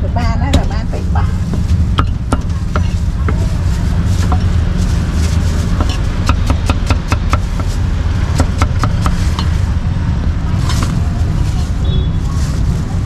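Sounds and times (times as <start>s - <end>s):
low rumble: 0.0s - 13.0s
cleaver chopping on wooden block: 5.8s - 7.7s.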